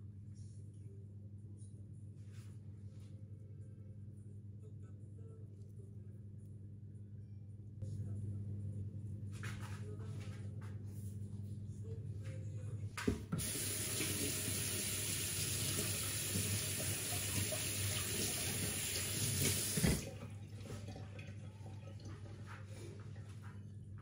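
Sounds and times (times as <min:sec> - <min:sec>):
water tap running: 0:13.3 - 0:22.2.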